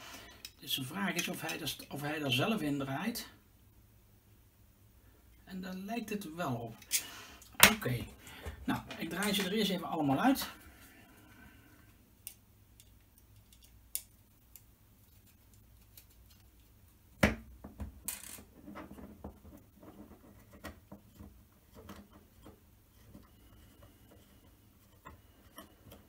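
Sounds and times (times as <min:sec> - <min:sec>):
small parts set on tabletop: 0:11.1 - 0:26.0.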